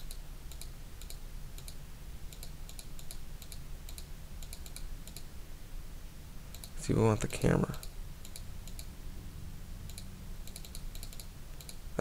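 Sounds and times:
computer mouse clicks: 0:00.0 - 0:05.3, 0:06.5 - 0:06.8, 0:07.8 - 0:08.9, 0:09.9 - 0:11.8
steady low hum: 0:00.0 - 0:12.0.

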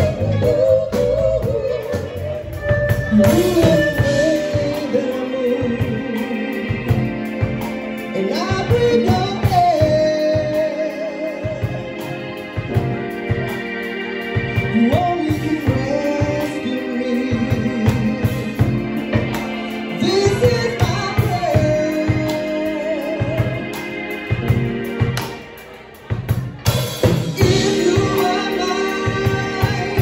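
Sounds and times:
woman singing with vibrato: 0:00.0 - 0:06.8
drum kit beat: 0:00.0 - 0:30.0
electric bass: 0:00.0 - 0:30.0
keyboard: 0:00.0 - 0:30.0.

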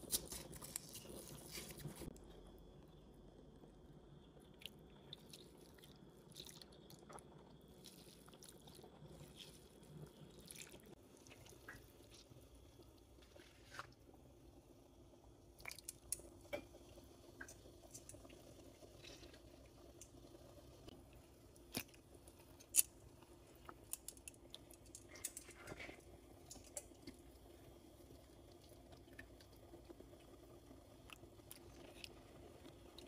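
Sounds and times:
wet food handling sounds: 0:04.5 - 0:14.1.

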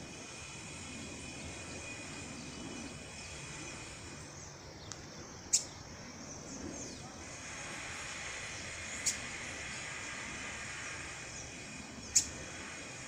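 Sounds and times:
steady hiss: 0:00.0 - 0:13.0
high insect tones: 0:00.2 - 0:06.6, 0:07.2 - 0:13.0
faint bird chirps: 0:01.2 - 0:07.5, 0:11.2 - 0:12.6.

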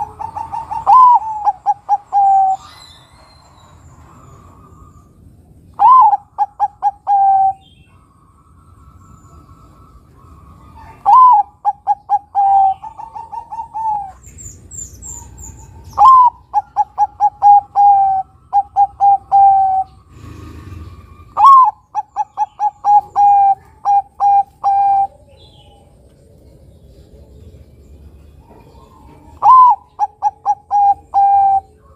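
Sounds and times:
dove cooing: 0:00.0 - 0:03.0, 0:05.8 - 0:08.1, 0:09.0 - 0:27.4, 0:28.4 - 0:31.9
small bird chirping: 0:08.7 - 0:31.9.

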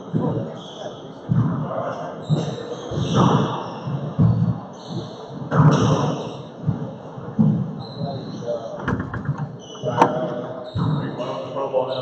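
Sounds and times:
thud: 0:08.8 - 0:11.0.

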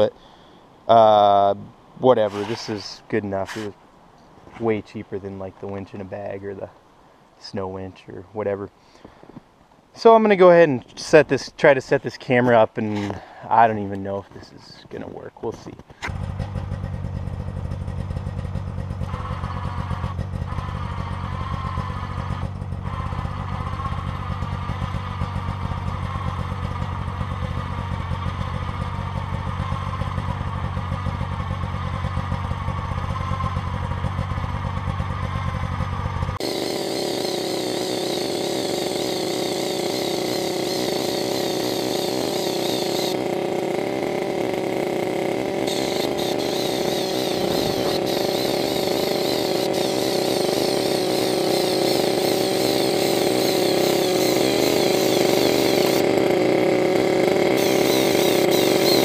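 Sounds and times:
snowmobile engine idling: 0:12.4 - 0:59.0
electric winch whining: 0:36.4 - 0:59.0.

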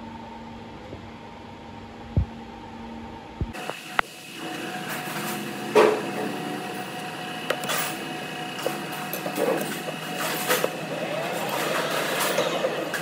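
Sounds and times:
steady machine hum: 0:00.0 - 0:13.0
lathe spindle turning: 0:04.0 - 0:13.0.

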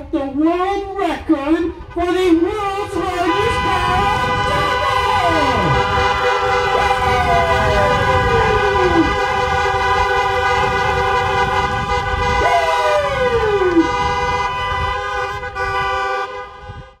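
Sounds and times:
car horns honking together: 0:03.0 - 0:12.6, 0:13.5 - 0:17.0.

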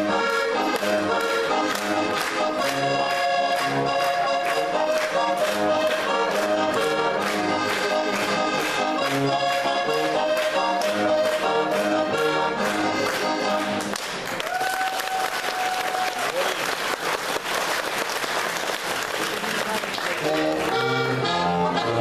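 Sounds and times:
button accordion folk tune: 0:00.0 - 0:14.0, 0:20.1 - 0:22.0.

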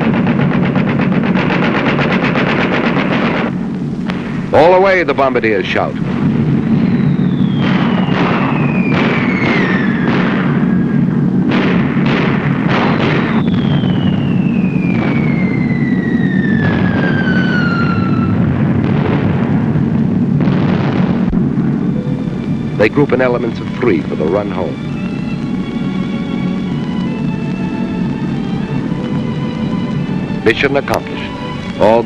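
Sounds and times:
aircraft engines droning: 0:00.0 - 0:18.9, 0:21.1 - 0:32.0
bomb explosions: 0:00.0 - 0:32.0
falling bomb whistles: 0:06.1 - 0:11.3, 0:12.4 - 0:19.3, 0:21.1 - 0:32.0.

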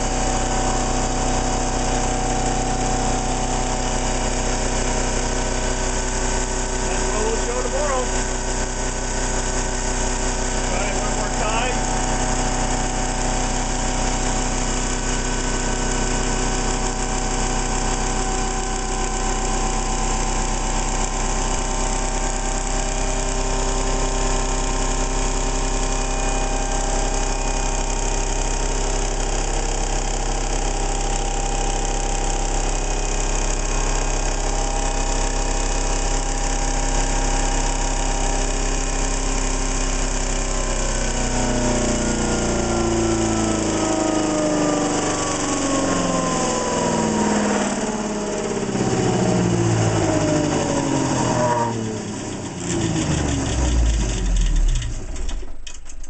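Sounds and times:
motor-generator humming and whining: 0:00.0 - 0:56.0.

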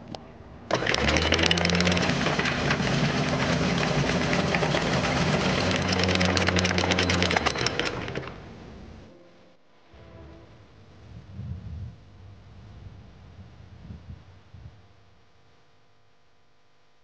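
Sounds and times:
electric anchor windlass motor hum: 0:00.7 - 0:08.6.

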